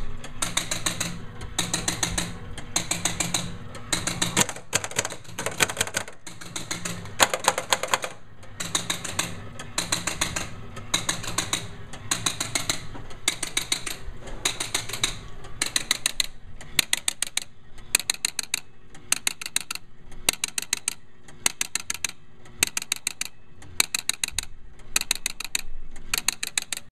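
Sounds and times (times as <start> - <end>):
pinball machine relays clattering: 0.0 - 26.9.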